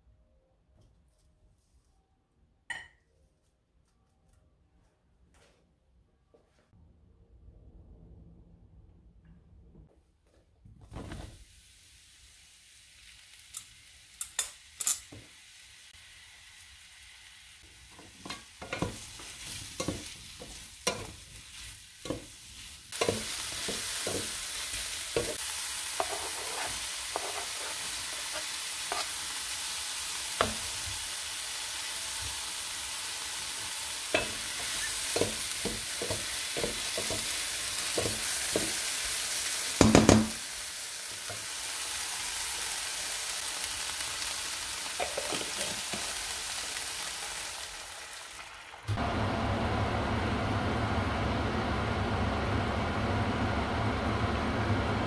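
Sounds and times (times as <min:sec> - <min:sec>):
mushrooms sizzling in a pan: 0:11.4 - 0:55.0
wooden spatula scraping a pan: 0:18.0 - 0:29.3.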